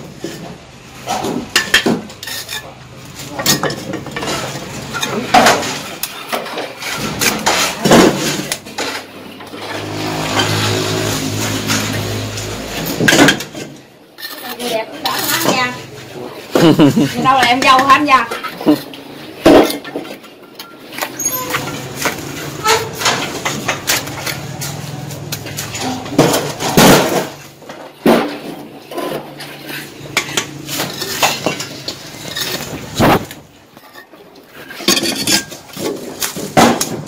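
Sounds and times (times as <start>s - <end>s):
trowel scraping mortar: 28.8s - 34.0s.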